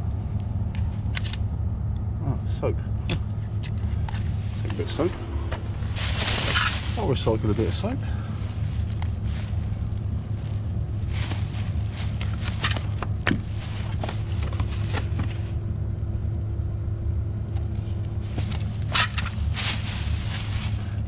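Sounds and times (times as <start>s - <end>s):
steady low rumble: 0.0s - 21.0s
rummaging through bin bags: 4.3s - 15.6s, 18.2s - 21.0s.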